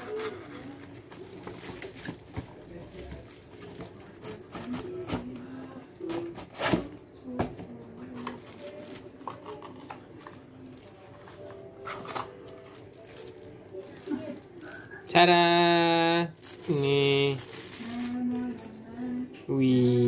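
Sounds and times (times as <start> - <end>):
cardboard crackling and scraping: 0.0 - 5.4
plastic bag crinkling: 0.0 - 6.3, 8.0 - 19.0.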